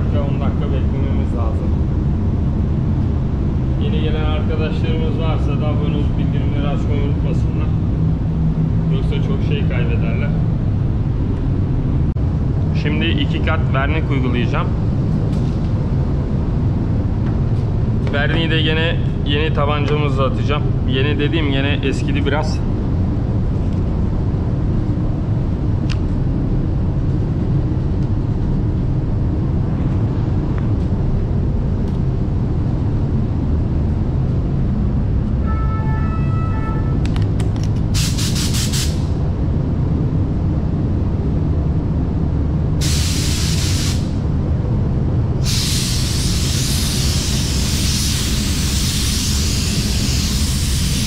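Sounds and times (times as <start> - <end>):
ventilation low rumble: 0.0 - 51.0
spray gun air hissing: 37.9 - 39.2, 42.8 - 44.2, 45.4 - 51.0.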